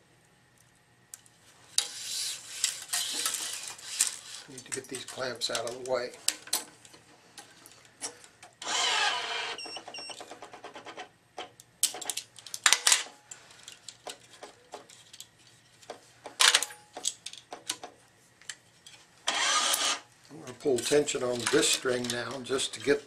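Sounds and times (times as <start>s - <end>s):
metal clamps clicking and knocking: 20.6s - 23.0s.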